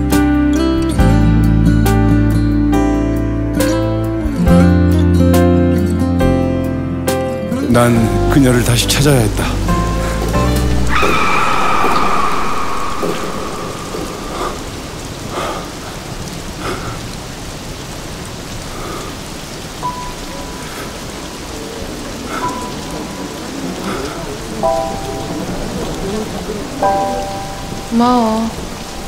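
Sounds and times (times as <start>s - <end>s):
heavy rain splashing on pavement: 7.4s - 29.0s.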